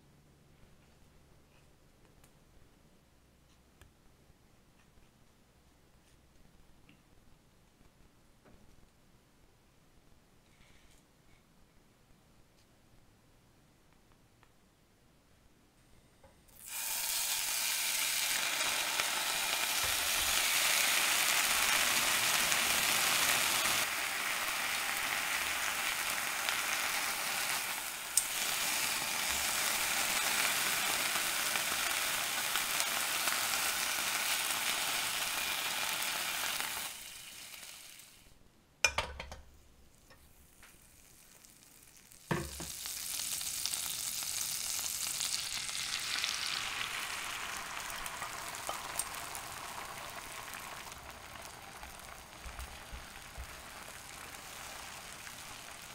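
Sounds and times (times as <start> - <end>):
butter sizzling in pan: 16.5 - 38.3, 40.0 - 55.9
ham sizzling in frying pan: 16.5 - 38.3, 39.9 - 55.9.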